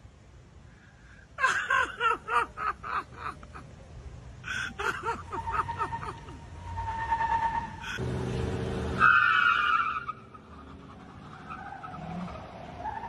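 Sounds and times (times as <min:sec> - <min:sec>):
person laughing hard: 0:01.4 - 0:03.7, 0:04.4 - 0:06.5.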